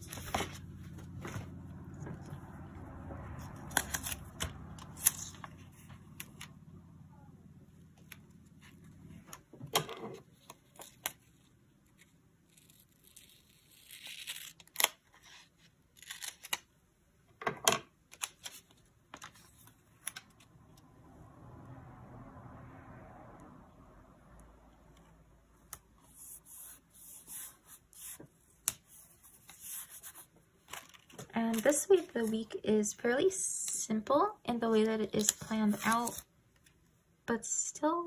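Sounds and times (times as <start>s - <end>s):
low steady hum: 0.0s - 17.4s
paper pages crinkling: 26.5s - 32.5s, 35.1s - 36.7s.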